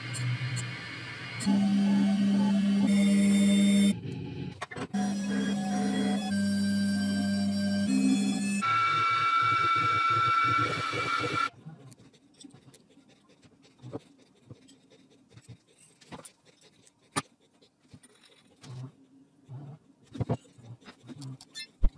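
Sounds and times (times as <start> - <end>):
machine whine: 0.0 - 11.5.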